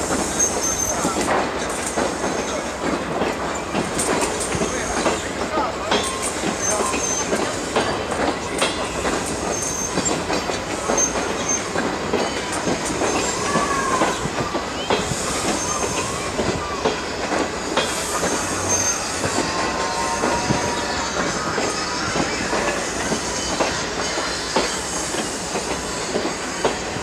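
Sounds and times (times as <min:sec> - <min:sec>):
train wheels clacking over joints: 0:00.0 - 0:27.0
wheel flange squeals: 0:09.3 - 0:17.2, 0:17.8 - 0:25.4.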